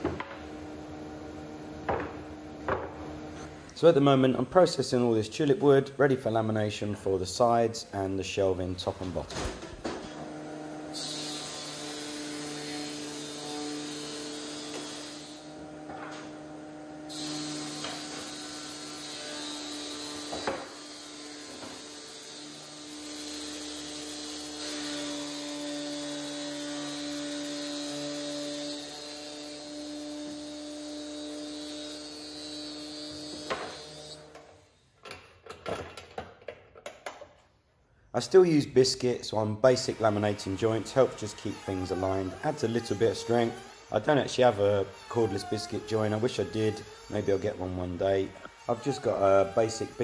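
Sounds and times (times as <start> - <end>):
high cutting hiss of planing: 10.9 - 15.5, 17.1 - 34.2, 39.6 - 50.0
planer humming: 39.8 - 50.0.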